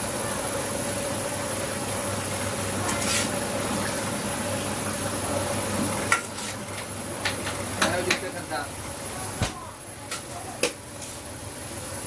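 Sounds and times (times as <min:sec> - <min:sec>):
ladle scraping in metal pot: 0:02.9 - 0:03.4.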